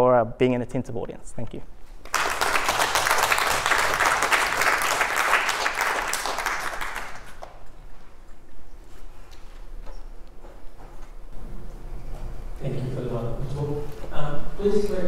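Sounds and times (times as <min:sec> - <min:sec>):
audience applauding: 0:02.0 - 0:07.6.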